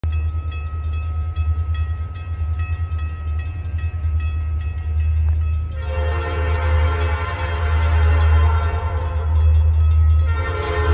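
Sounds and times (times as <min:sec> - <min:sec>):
railroad crossing bell ringing: 0:00.0 - 0:10.9
train rumble: 0:00.0 - 0:10.9
locomotive air horn: 0:05.8 - 0:09.4, 0:10.2 - 0:10.9.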